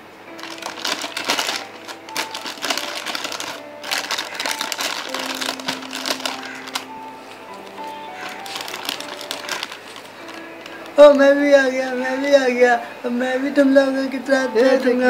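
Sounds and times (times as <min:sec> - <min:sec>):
faint music: 0:00.0 - 0:15.0
crisp packet crinkling: 0:00.3 - 0:11.3.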